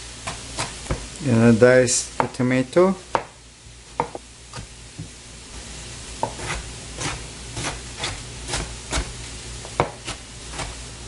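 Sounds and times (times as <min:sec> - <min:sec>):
corn sizzling in a pan: 0:00.0 - 0:11.0
knife tapping cutting board: 0:02.2 - 0:02.4, 0:03.1 - 0:03.4, 0:04.0 - 0:05.1, 0:06.2 - 0:06.6, 0:09.8 - 0:10.0.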